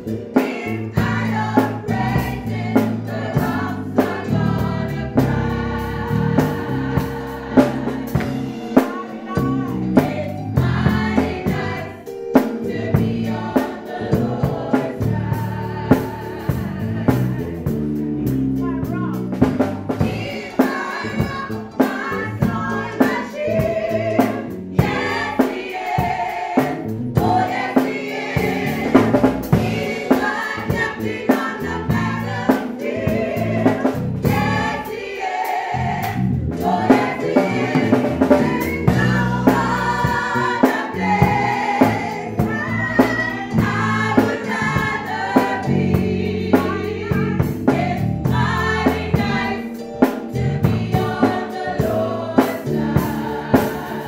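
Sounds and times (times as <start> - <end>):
women's gospel choir singing: 0.0 - 54.0
instrumental beat and bass: 0.8 - 22.9, 26.0 - 34.9.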